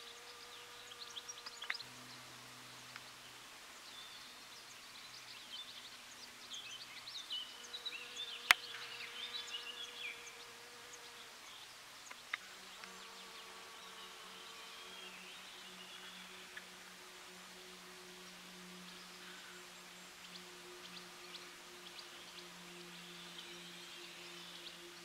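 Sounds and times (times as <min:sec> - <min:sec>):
bee buzzing: 0:00.0 - 0:04.4, 0:07.1 - 0:17.3
small birds chirping: 0:00.0 - 0:25.0.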